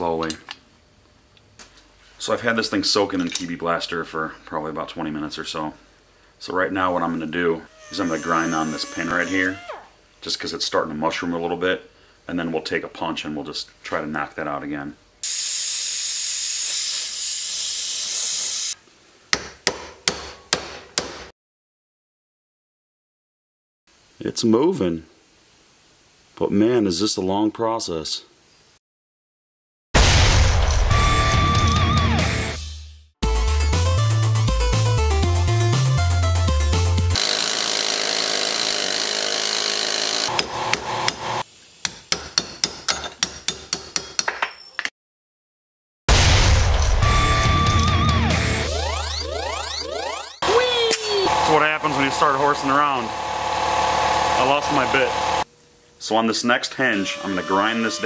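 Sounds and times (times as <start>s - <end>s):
gas torch hissing: 15.2s - 18.8s
hammer striking metal punch: 19.3s - 21.3s, 41.8s - 44.4s
rotary grinder grinding metal: 37.2s - 41.2s, 56.9s - 58.0s.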